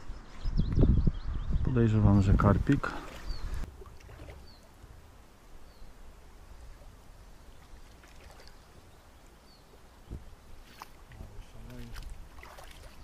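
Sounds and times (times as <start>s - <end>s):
wind rumble on microphone: 0.0s - 3.7s.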